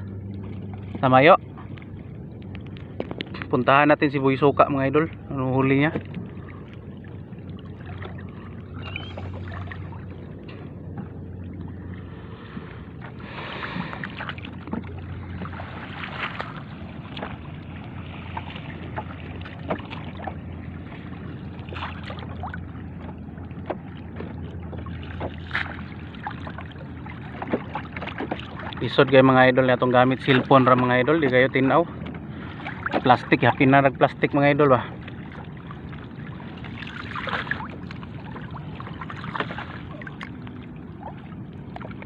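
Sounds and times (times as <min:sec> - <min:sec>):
steady low hum: 0:00.0 - 0:28.8
water sloshing and splashing: 0:00.0 - 0:42.0.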